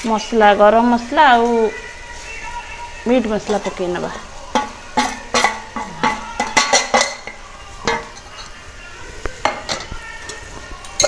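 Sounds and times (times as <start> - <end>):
faint sizzling in a pot: 0.0 - 11.0
metal spoon clinking on metal: 4.5 - 8.6, 9.4 - 11.0.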